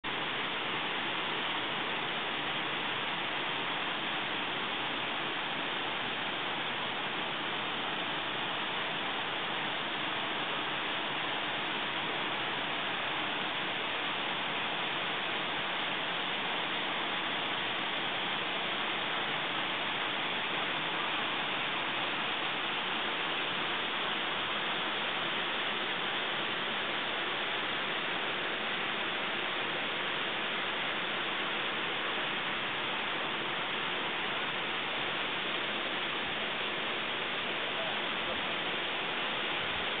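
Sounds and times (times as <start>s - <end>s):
waterfall rushing: 0.1s - 40.0s.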